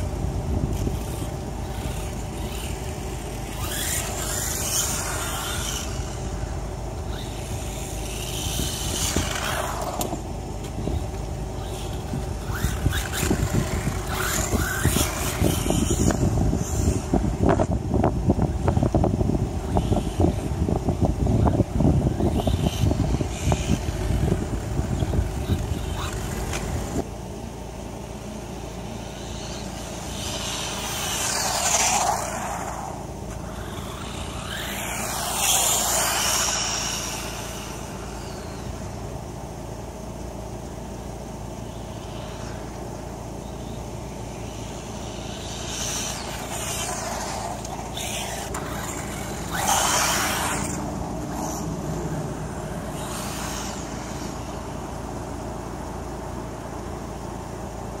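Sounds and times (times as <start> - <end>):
wind rumble on microphone: 0.0 - 27.1, 41.5 - 55.6
rc buggy motor whining past: 0.0 - 27.2, 27.8 - 58.0.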